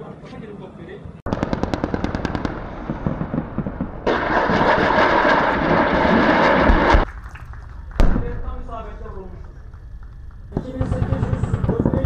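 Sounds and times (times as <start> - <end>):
automatic cannon firing: 1.3 - 7.0, 8.0 - 8.8.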